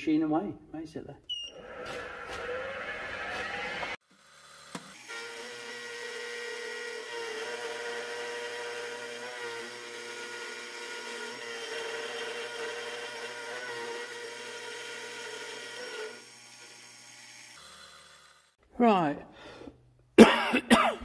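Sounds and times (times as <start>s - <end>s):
milling machine motor whine: 1.5s - 4.0s
metal cutting noise: 1.5s - 18.6s.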